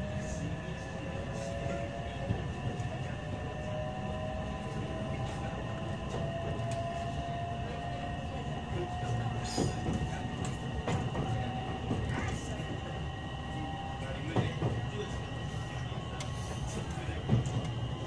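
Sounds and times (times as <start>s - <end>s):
wheels rumbling on rails: 0.0s - 18.0s.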